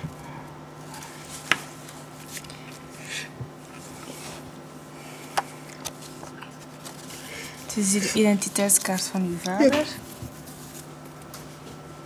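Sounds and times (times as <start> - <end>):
steady low hum: 0.0 - 12.0
paper rustling: 5.8 - 7.6, 8.2 - 11.6.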